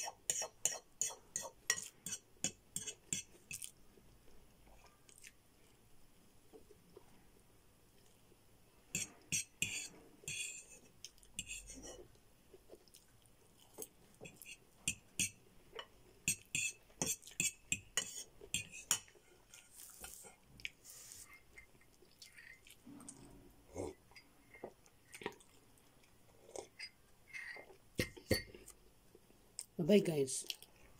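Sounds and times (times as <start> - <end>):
fork scraping ceramic bowl: 0.0 - 3.7, 8.9 - 12.0, 14.2 - 15.4, 16.3 - 20.3.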